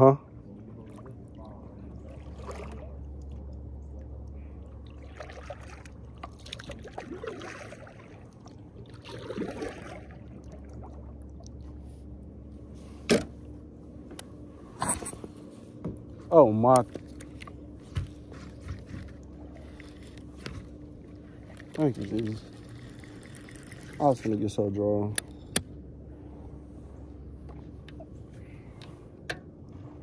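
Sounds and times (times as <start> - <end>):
steady low rumble: 0.0 - 30.0
kayak paddle swishing water: 1.9 - 3.7, 4.4 - 12.1, 17.3 - 24.3.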